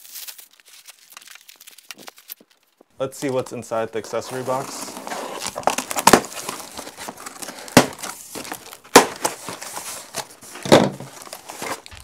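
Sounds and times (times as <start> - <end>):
cardboard and packing rustling: 0.0 - 12.0
cardboard box snaps: 5.6 - 6.6, 7.4 - 9.6.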